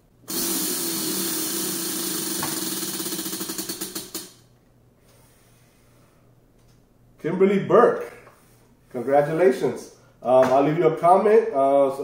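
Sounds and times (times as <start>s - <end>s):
prize wheel clicking: 0.3s - 4.4s.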